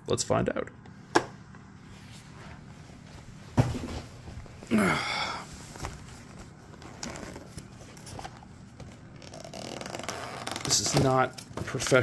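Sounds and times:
squeaky cardboard scrape: 9.2 - 11.0.

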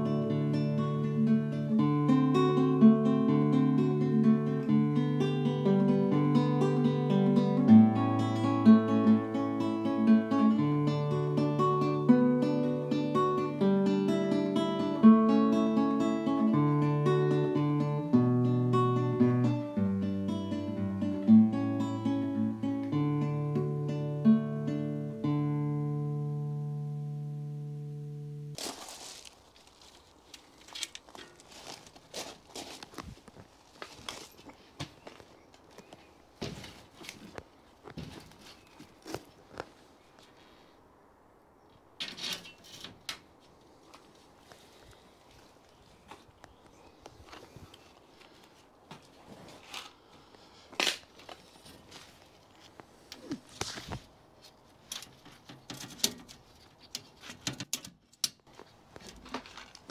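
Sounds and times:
acoustic guitar melody: 0.0 - 28.7
scraping rustle: 28.5 - 40.6, 42.0 - 46.3, 47.1 - 50.1, 50.8 - 57.7, 58.4 - 59.9.

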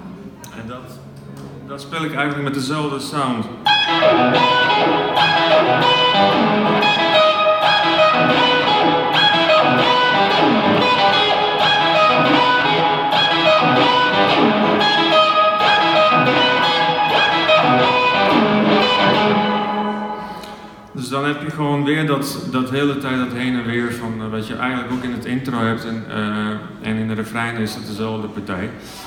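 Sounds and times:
pitch-shifted electric guitar riff: 3.6 - 20.9.

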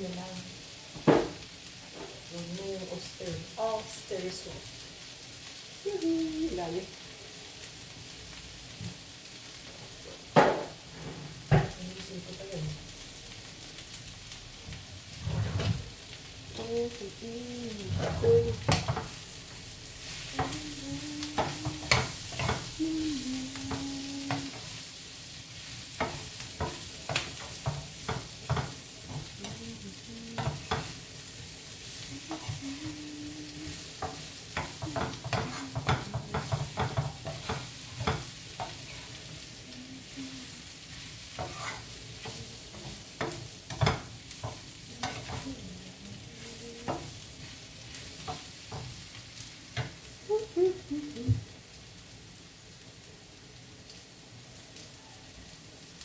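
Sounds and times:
food sizzling in a frying pan: 0.0 - 56.0
wooden spatula scraping a pan: 10.2 - 11.8, 15.0 - 16.1, 17.6 - 19.2, 20.0 - 24.9, 25.6 - 33.0, 33.6 - 49.0.

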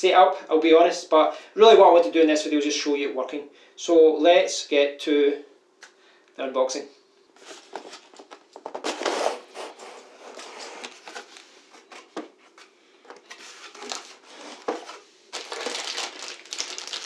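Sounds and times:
cardboard scraping and rubbing: 7.4 - 15.1
plastic bags crinkling: 13.5 - 17.0.

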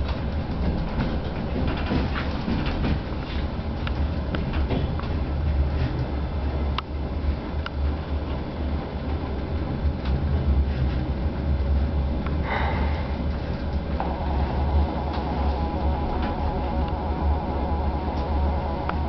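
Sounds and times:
diesel train rumble: 0.0 - 19.0
track clicks: 13.2 - 19.0
higher steady tone: 14.0 - 19.0.

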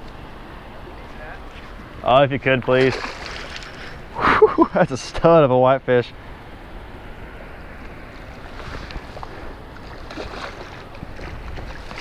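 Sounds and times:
water washing against pier wall: 2.6 - 3.9
wind buffeting microphone: 7.3 - 12.0.

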